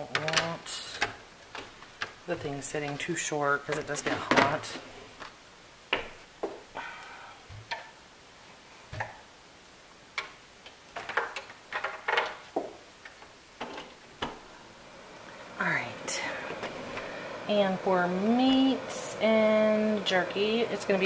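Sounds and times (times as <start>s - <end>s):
plastic clicks and knocks: 10.1s - 14.4s.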